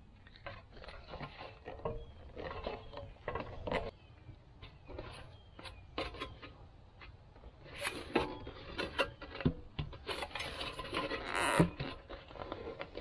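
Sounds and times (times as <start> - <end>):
rasping scrape: 0.4 - 4.0, 7.5 - 13.0
rubber rubbing and scraping: 7.5 - 13.0.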